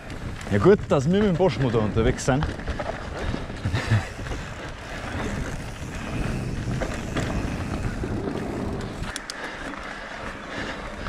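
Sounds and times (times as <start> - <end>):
bike tyres rumbling on trail: 0.0 - 11.0
sharp clicks: 8.4 - 9.4.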